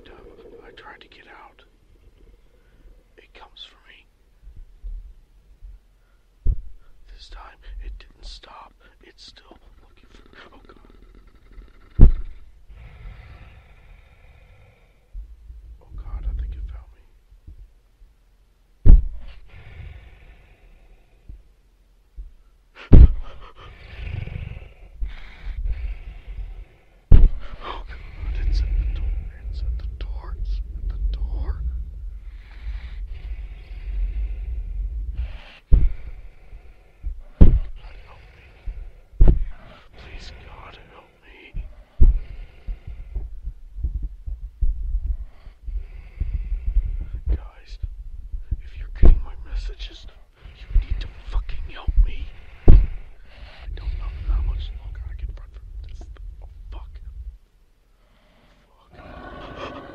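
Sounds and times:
faint hiss: 0.0 - 43.8, 45.1 - 59.9
muffled low thumps: 4.3 - 8.2, 12.0 - 12.7, 15.1 - 19.5, 21.2 - 23.5, 27.1 - 57.8
loud roars: 59.0 - 59.9.

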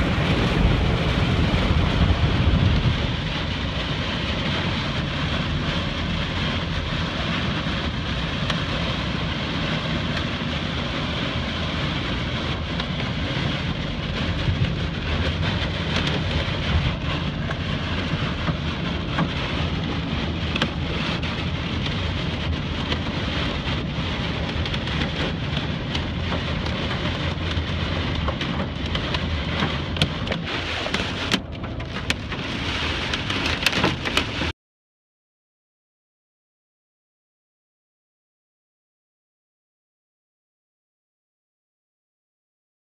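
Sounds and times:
heavy rain and wind on vehicle: 0.0 - 34.5
raindrops tapping on glass: 12.6 - 34.4.

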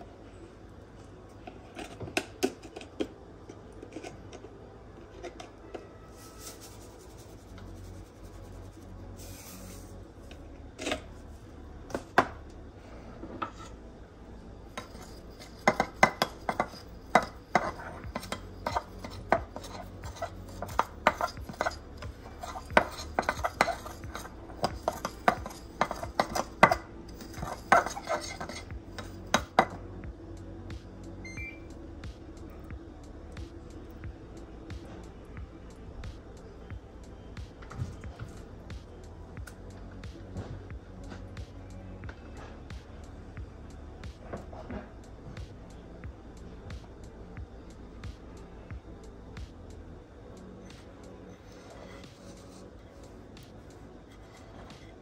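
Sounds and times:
metal utensil scraping glass dish: 14.8 - 29.8, 51.3 - 52.6.

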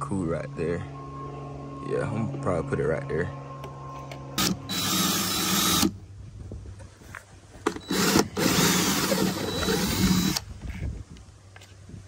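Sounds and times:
cordless drill drilling plastic: 4.4 - 6.0, 7.7 - 10.5.

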